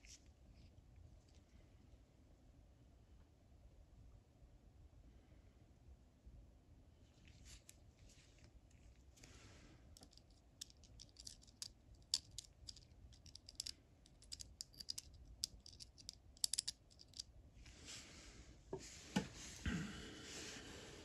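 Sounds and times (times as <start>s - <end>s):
rustle of handled parts: 10.0s - 17.9s.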